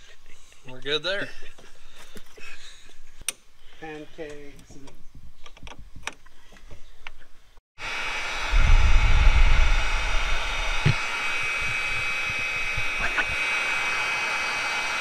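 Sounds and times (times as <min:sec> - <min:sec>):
heat gun blowing: 0:07.8 - 0:15.0
low rumble: 0:08.6 - 0:11.0.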